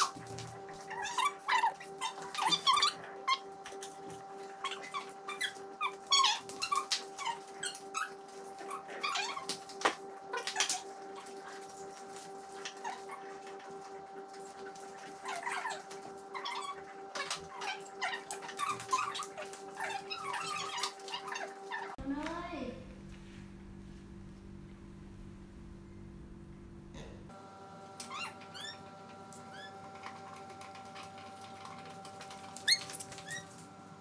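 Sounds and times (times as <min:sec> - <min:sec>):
steady hum: 0:00.0 - 0:34.0
small pets' high-pitched cries: 0:00.8 - 0:04.0, 0:04.6 - 0:09.7, 0:15.2 - 0:22.0, 0:28.0 - 0:28.9, 0:32.5 - 0:33.6.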